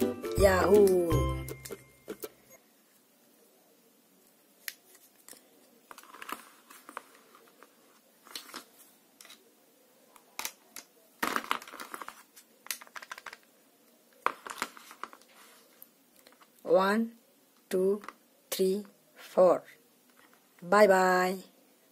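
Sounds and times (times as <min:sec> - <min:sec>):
plastic toys clicking and knocking: 0:10.3 - 0:13.5
plastic toys rattling: 0:11.2 - 0:13.5.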